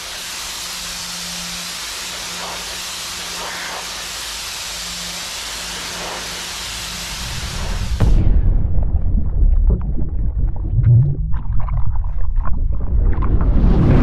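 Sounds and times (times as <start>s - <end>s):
pressure washer spraying metal wall: 0.0s - 7.2s.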